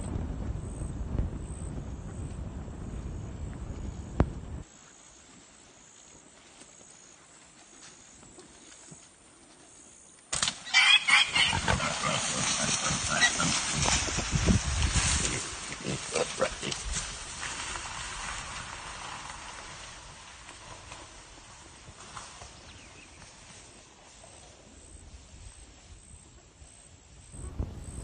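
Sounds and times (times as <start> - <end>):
animal crashing through dry brush: 10.3 - 22.6
hog squealing: 10.7 - 13.8.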